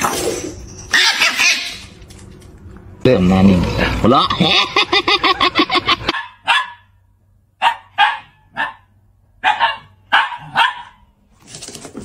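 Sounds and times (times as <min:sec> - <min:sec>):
dog barking: 0:06.1 - 0:06.9, 0:07.6 - 0:11.1.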